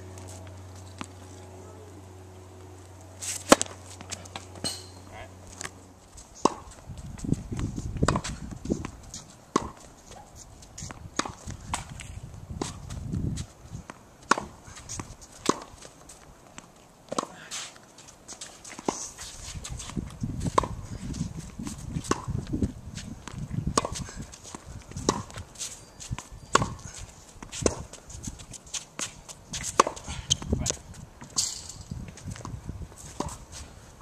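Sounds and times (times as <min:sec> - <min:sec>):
racket hitting tennis ball: 0:03.2 - 0:05.8, 0:06.4 - 0:13.0, 0:13.9 - 0:20.9, 0:21.6 - 0:22.4, 0:23.2 - 0:30.5, 0:32.4 - 0:33.5.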